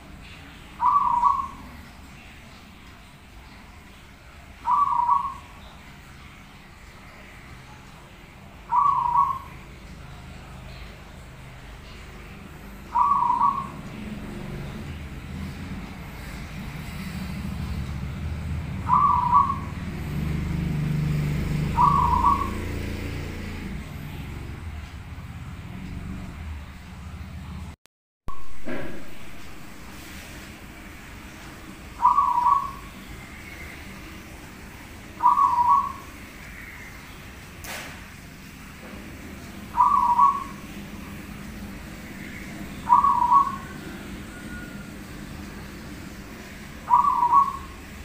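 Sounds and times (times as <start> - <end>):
dove cooing: 0.8 - 1.7, 4.6 - 5.5, 8.6 - 9.7, 12.9 - 14.2, 18.8 - 20.4, 21.0 - 23.1, 31.9 - 33.0, 35.2 - 36.8, 39.5 - 41.2, 41.9 - 45.6, 46.7 - 47.9.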